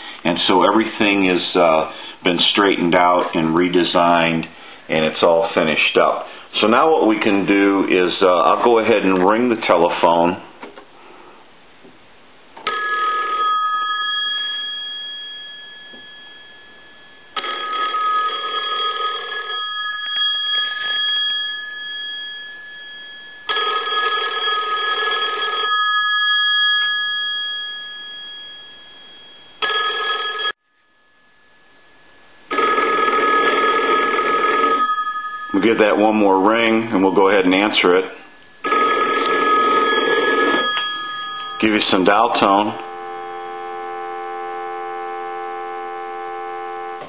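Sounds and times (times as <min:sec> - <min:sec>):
payphone ringing: 0:12.7 - 0:22.6, 0:23.4 - 0:30.6, 0:32.5 - 0:36.0, 0:38.6 - 0:47.0.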